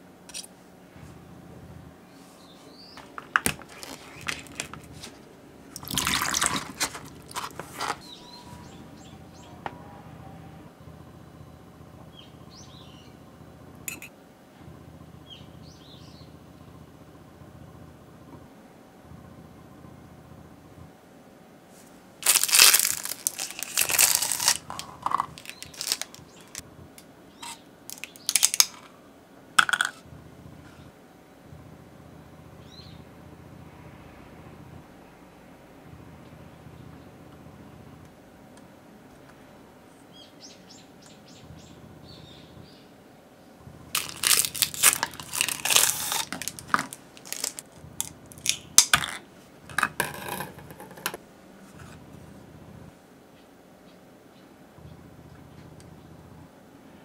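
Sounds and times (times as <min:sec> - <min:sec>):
handling clicks and knocks: 0:03.0 - 0:05.1
plastic wrapper crinkling and tearing: 0:03.0 - 0:05.2, 0:05.8 - 0:08.0, 0:22.2 - 0:26.6, 0:27.4 - 0:28.8, 0:44.0 - 0:48.9.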